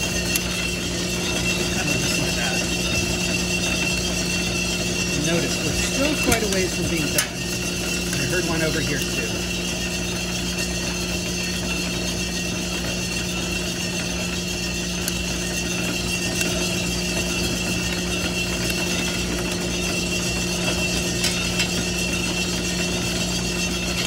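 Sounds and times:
metal trier sliding in drum: 0.0s - 9.5s
coffee roaster mechanical hum: 0.0s - 24.0s
coffee beans cracking: 4.8s - 9.5s, 15.0s - 23.3s.

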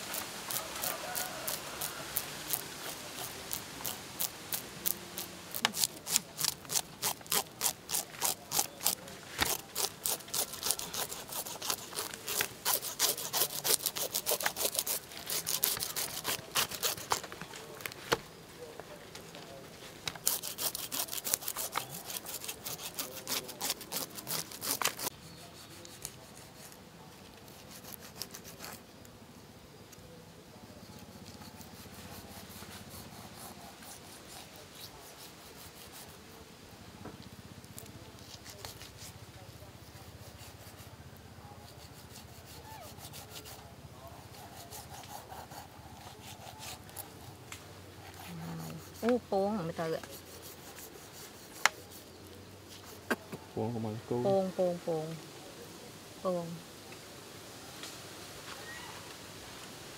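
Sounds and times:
knife scraping snake scales: 0.0s - 17.9s, 20.1s - 28.9s, 30.9s - 36.3s, 37.7s - 39.2s, 41.6s - 53.4s
blade cutting skin: 0.1s - 17.3s, 20.2s - 26.7s.

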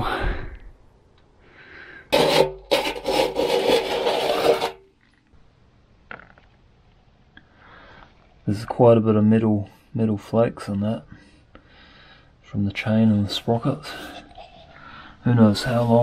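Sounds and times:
metal scoop scraping metal case: 2.1s - 4.9s.

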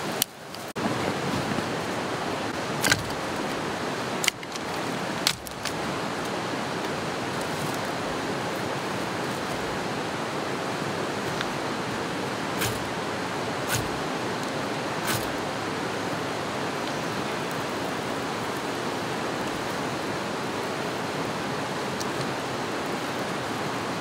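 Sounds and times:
river water flowing: 0.0s - 24.0s.

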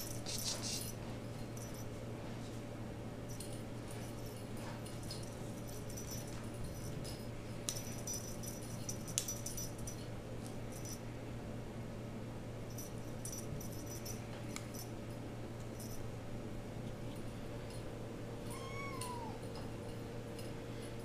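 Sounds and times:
feather toy ticks and rustles: 0.0s - 2.7s, 3.3s - 11.0s
steady low hum: 0.0s - 21.0s.

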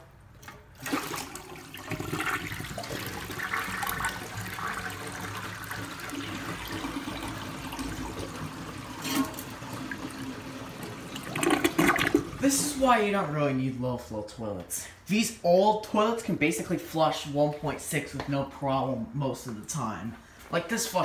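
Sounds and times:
toilet flushing: 0.4s - 12.8s.

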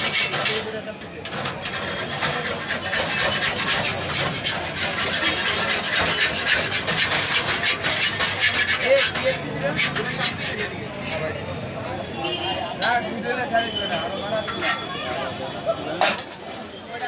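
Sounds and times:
cloth scraping a cast-iron pan: 0.0s - 11.4s.

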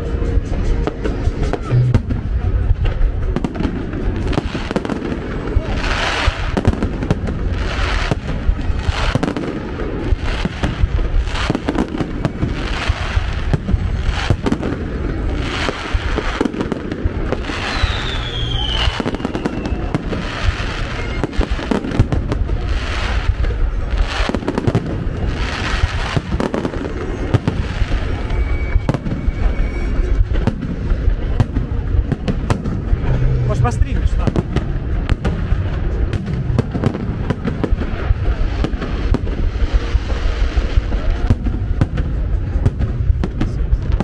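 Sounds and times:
fireworks bursting: 0.0s - 44.0s
firework falling whistle: 11.5s - 14.6s, 15.6s - 22.0s, 26.1s - 31.1s.

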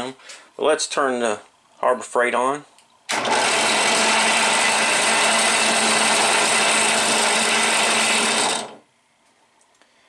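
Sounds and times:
drill press running: 3.1s - 8.8s.

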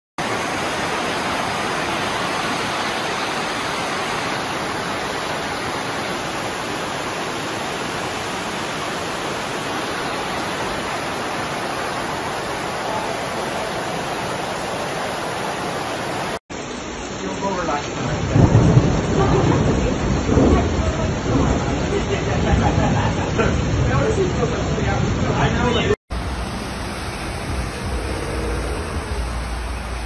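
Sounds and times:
floodwater rushing: 0.2s - 30.0s.

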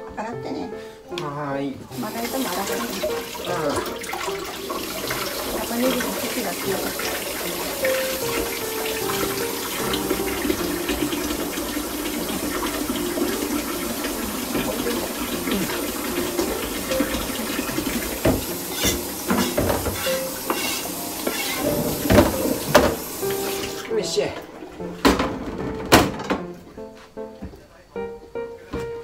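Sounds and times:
kitchen tap running into sink: 1.8s - 26.5s
cutting board and utensils clattering: 14.5s - 23.1s.

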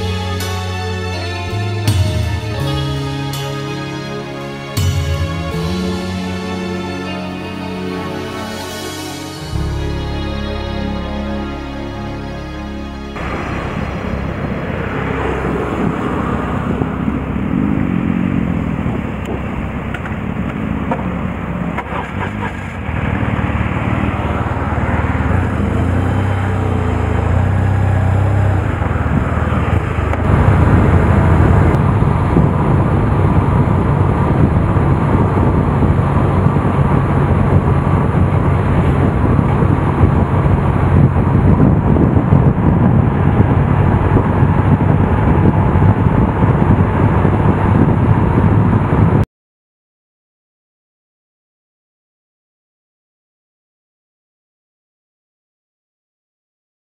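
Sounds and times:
motorcycle engine running: 13.2s - 48.8s.

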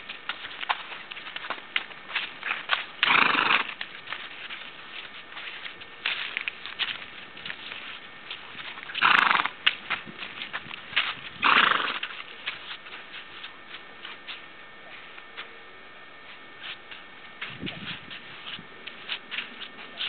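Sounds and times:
hooves clopping on pavement: 0.0s - 20.0s
pony snorting: 3.0s - 3.8s, 8.9s - 9.6s, 11.4s - 12.2s.

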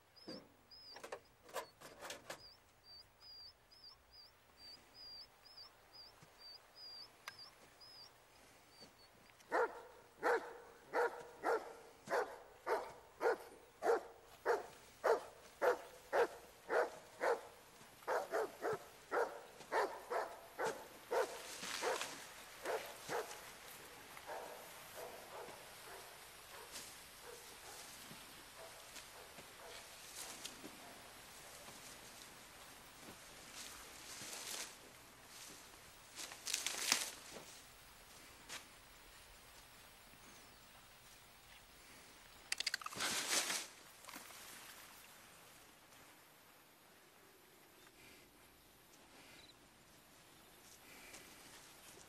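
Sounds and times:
soft rustling hiss: 0.0s - 52.0s
dog barking: 9.5s - 23.4s, 24.2s - 27.9s, 28.6s - 29.9s
faint insect-like chirps: 48.6s - 50.7s.

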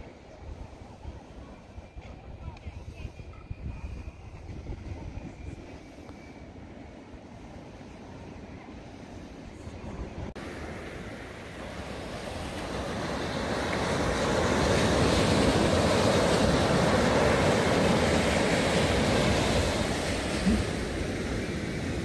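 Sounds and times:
ocean surf washing up a beach: 10.3s - 22.0s.

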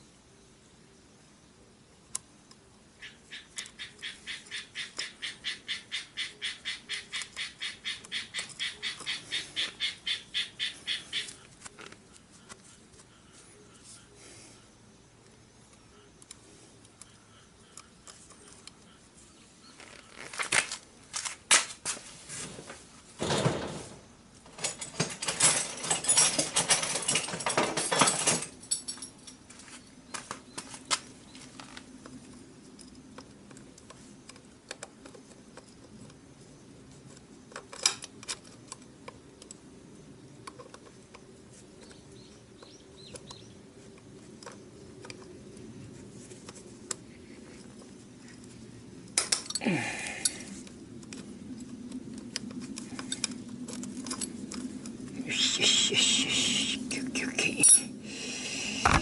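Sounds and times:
chain rattling and rubbing: 24.5s - 29.8s, 52.4s - 58.0s.

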